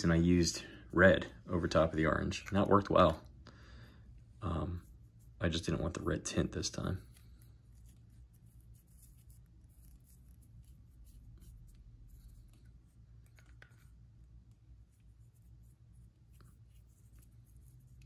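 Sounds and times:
steady low hum: 0:00.0 - 0:18.0
paintbrush scratching: 0:04.7 - 0:18.0.

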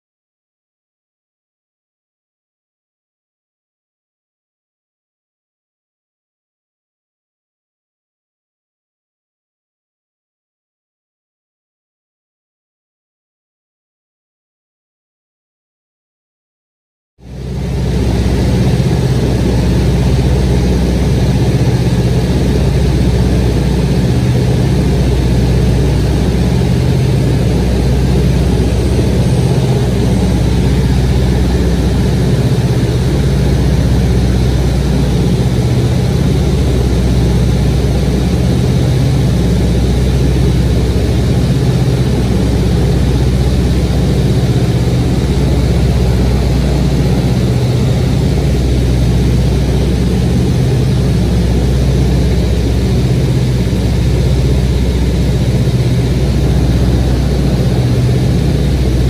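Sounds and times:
light aircraft engine drone: 0:17.2 - 0:59.0.

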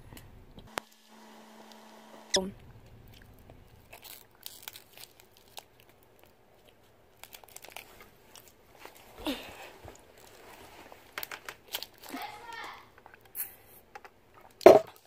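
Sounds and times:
chewing snack bar: 0:02.5 - 0:12.3
foil wrapper crinkling: 0:03.0 - 0:13.3.

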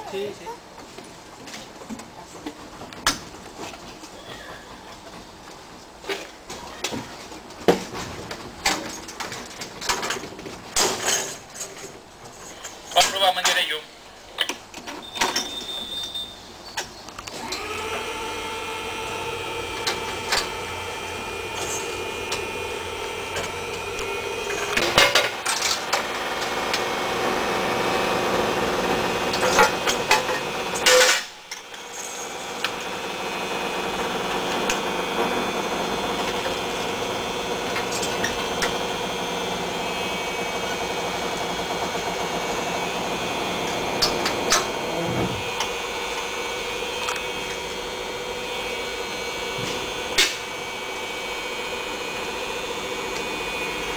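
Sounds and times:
electric train whine: 0:17.4 - 0:53.9.

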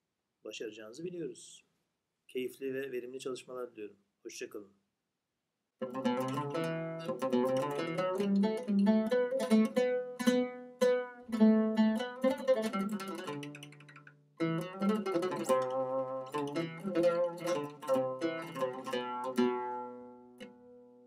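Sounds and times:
oud plucked notes: 0:05.8 - 0:21.0.

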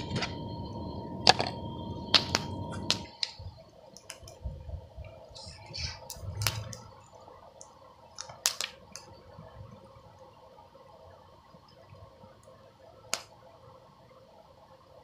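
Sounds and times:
steady rushing noise: 0:00.0 - 0:07.5.

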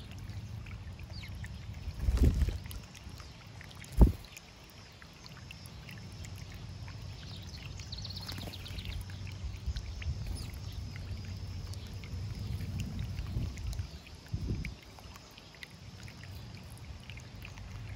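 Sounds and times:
fountain water splashing over rocks: 0:00.0 - 0:17.9
sparrows chirping: 0:06.5 - 0:14.1.

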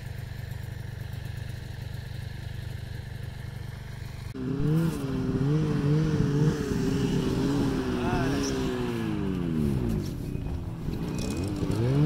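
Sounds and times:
snowmobile engine revving: 0:04.4 - 0:12.0.

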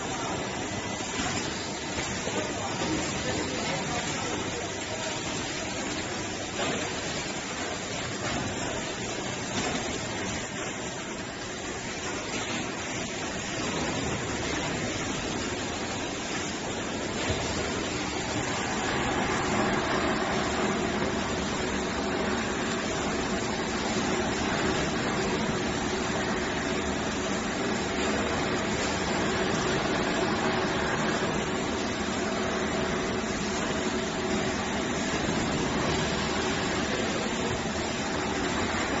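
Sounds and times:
packing machine running: 0:00.0 - 0:39.0.

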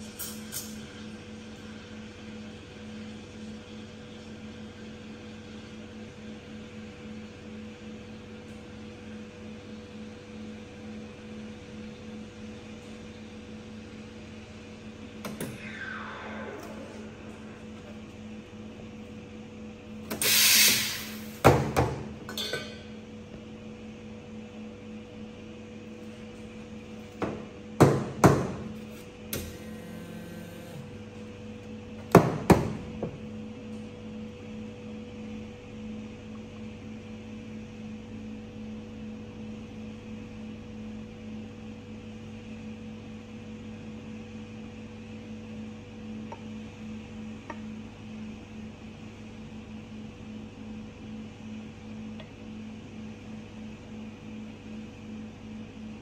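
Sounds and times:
low machine hum: 0:00.0 - 0:56.0
steam wand hissing: 0:20.2 - 0:21.3.

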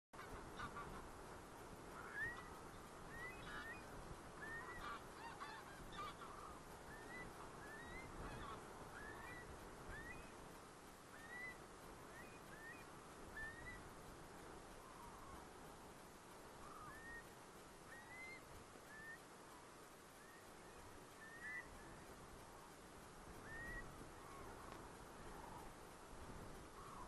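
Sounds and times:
geese calling: 0:00.2 - 0:10.5, 0:11.1 - 0:14.0, 0:14.7 - 0:25.9, 0:26.6 - 0:27.0
steady background hiss: 0:00.2 - 0:27.0.

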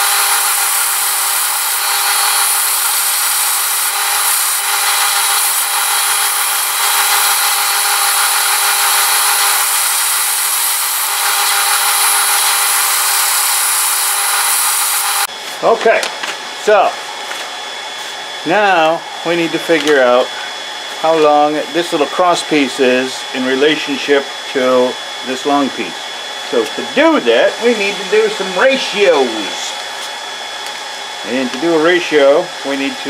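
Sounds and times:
motor hum: 0:00.0 - 0:15.3
steel grinding on belt: 0:00.0 - 0:15.3.

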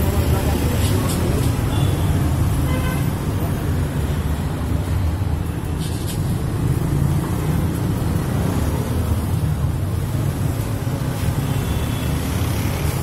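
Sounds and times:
road traffic rumble: 0:00.0 - 0:13.0.

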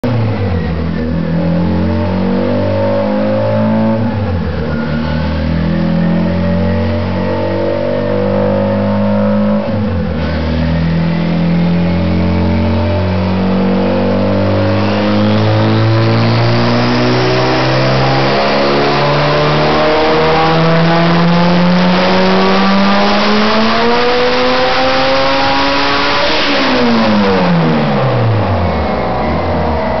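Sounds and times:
car engine revving hard: 0:00.0 - 0:30.0.

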